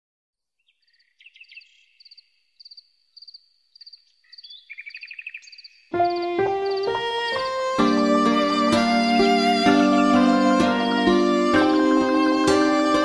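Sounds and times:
high faint chirping trill: 0:00.6 - 0:09.2
lower faster chirping call: 0:00.6 - 0:13.0
background music with violin: 0:05.9 - 0:13.0.

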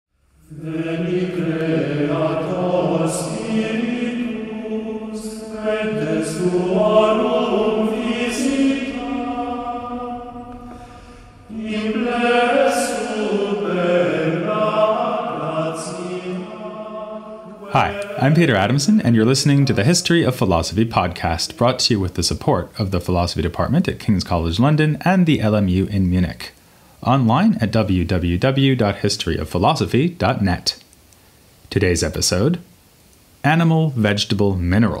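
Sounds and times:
choir singing a chant: 0:00.4 - 0:22.0.

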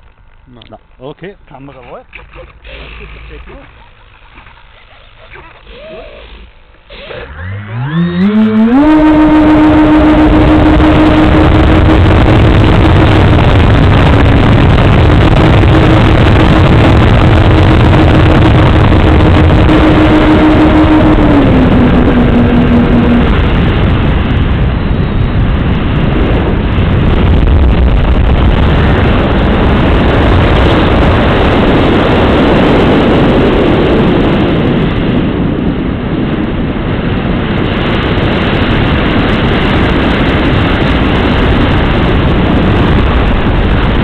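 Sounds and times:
wind rush: 0:01.5 - 0:44.0
model airplane motor humming: 0:02.0 - 0:23.6.

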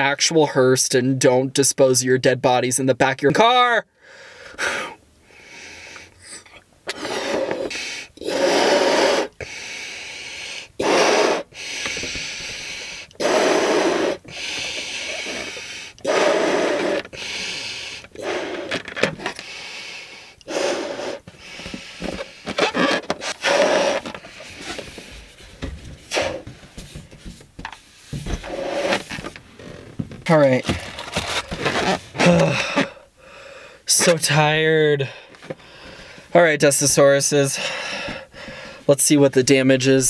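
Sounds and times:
person blowing up balloon: 0:04.5 - 0:25.1, 0:26.0 - 0:26.6, 0:28.4 - 0:29.3, 0:30.7 - 0:33.0
breaths drawn in: 0:04.6 - 0:25.4.

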